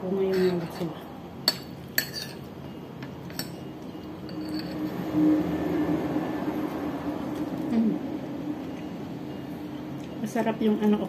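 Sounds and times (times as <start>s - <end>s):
low steady hum: 0.0s - 11.0s
china clinking: 0.2s - 5.0s.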